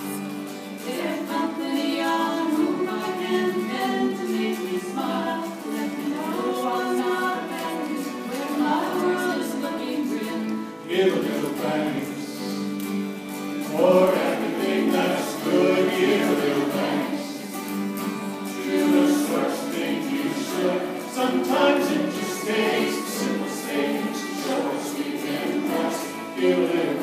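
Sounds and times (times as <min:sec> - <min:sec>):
acoustic guitars playing: 0:00.0 - 0:27.0
fiddle playing: 0:00.0 - 0:27.0
group of voices singing: 0:00.7 - 0:13.0, 0:13.6 - 0:27.0.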